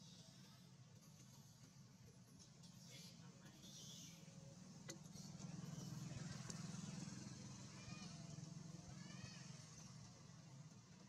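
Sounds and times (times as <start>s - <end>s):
faint chirps: 2.8s - 4.5s.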